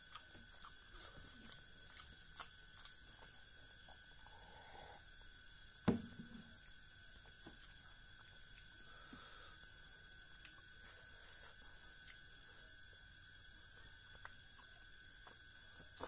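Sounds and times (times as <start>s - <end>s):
mouth clicks and chewing: 0.0s - 4.0s
sharp knock: 5.8s - 6.4s.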